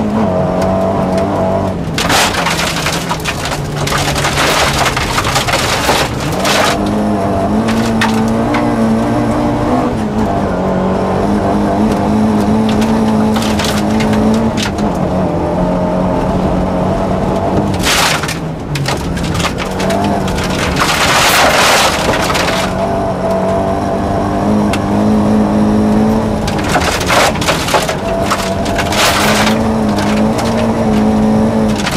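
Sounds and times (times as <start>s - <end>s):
gravel rattling against underbody: 0.0s - 9.0s, 11.8s - 15.3s, 17.3s - 23.7s, 25.9s - 31.9s
rally car engine running hard: 0.0s - 31.9s.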